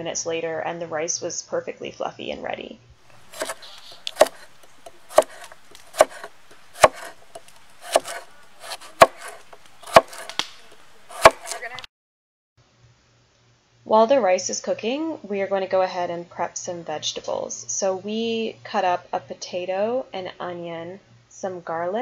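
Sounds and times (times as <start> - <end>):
knife slicing carrot on wood: 3.1 - 11.8.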